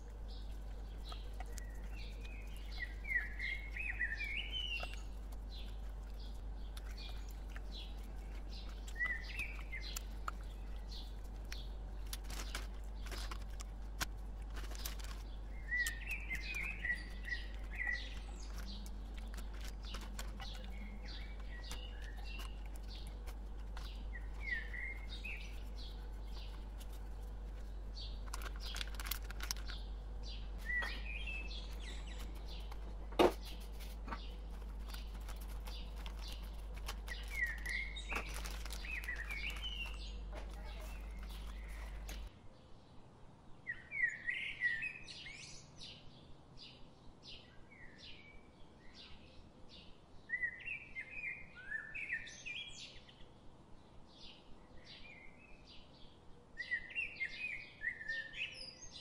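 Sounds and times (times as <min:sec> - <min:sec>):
clicks and rustles: 0:00.0 - 0:42.3
steady low hum: 0:00.0 - 0:43.5
small birds chirping: 0:00.0 - 0:59.0.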